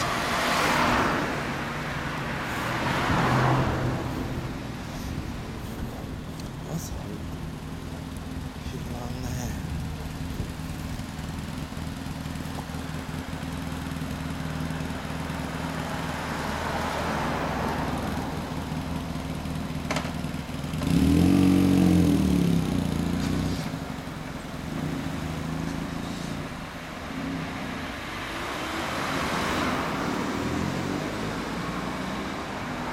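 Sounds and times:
cars passing: 0.0s - 32.9s
motorcycle engine running: 5.2s - 17.1s, 17.9s - 27.6s.

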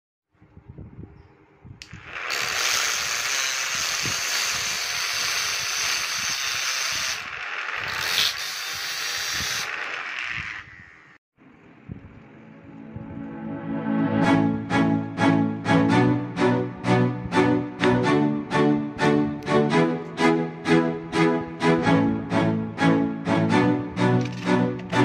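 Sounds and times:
grinder grinding steel blade: 1.8s - 11.2s.

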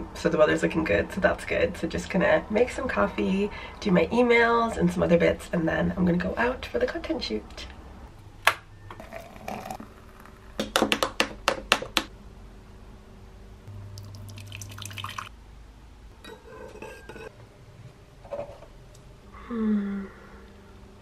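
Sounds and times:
liquid pouring: 9.0s - 10.3s, 13.8s - 15.3s
glass and crockery clinking: 16.2s - 17.3s.

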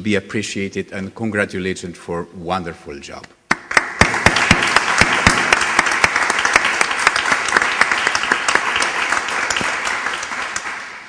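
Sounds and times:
audience applauding: 3.5s - 11.0s
close loud hand claps: 3.5s - 11.0s.

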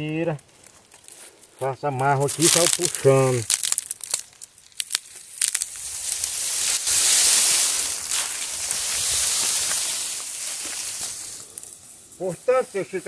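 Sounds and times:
palm leaves rustling and scraping: 0.4s - 13.0s.

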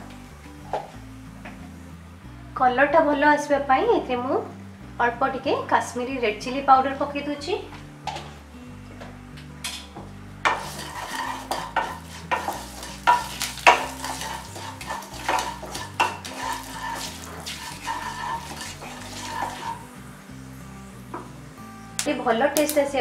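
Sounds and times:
oil sizzling: 10.3s - 23.0s
wooden spatula scraping pan: 10.4s - 19.9s.

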